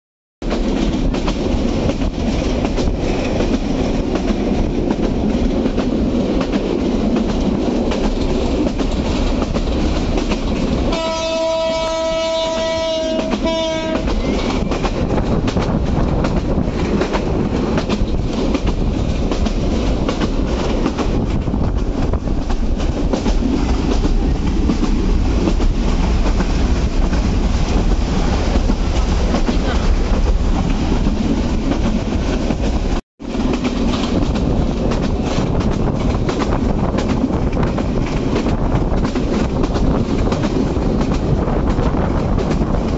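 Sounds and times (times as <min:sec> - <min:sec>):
train wheels rumbling on rails: 0:00.4 - 0:42.9
train horn: 0:10.9 - 0:14.9.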